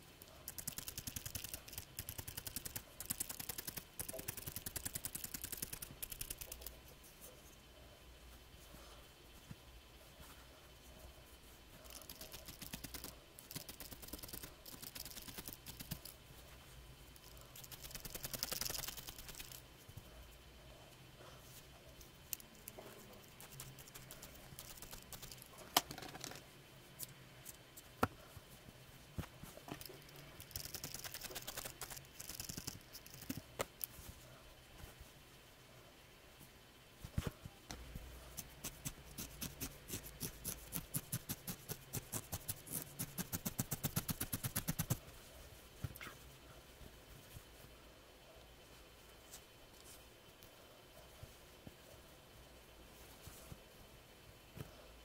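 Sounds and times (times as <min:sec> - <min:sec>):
felting needle clicking: 0:00.2 - 0:06.8, 0:11.9 - 0:16.2, 0:17.2 - 0:19.6, 0:22.0 - 0:25.9, 0:29.7 - 0:33.9.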